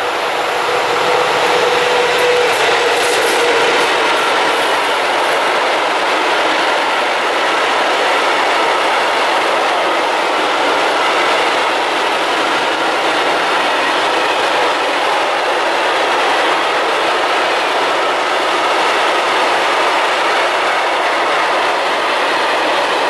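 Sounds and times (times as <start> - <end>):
locomotive whine: 0.0 - 18.2
train wheels rumbling on rails: 0.0 - 23.0.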